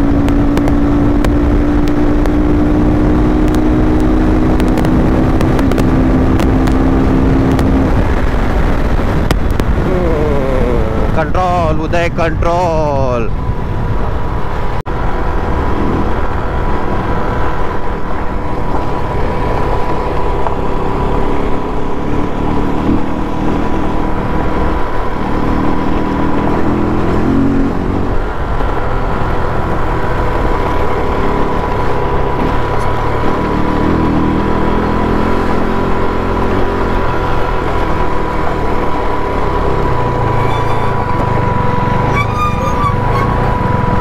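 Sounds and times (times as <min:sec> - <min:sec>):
wind rush on helmet: 0:00.0 - 0:11.3, 0:13.3 - 0:34.8
motorcycle engine running: 0:00.0 - 0:11.4, 0:13.3 - 0:44.0.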